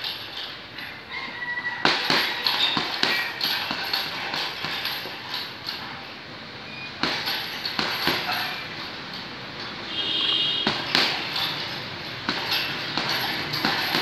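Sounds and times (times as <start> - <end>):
punches slapping heavy bag: 1.8 - 5.5, 7.0 - 8.7, 10.5 - 14.0.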